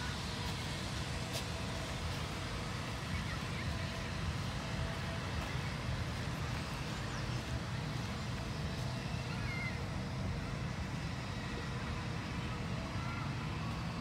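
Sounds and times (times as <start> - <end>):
steady outdoor rumble: 0.0 - 14.0.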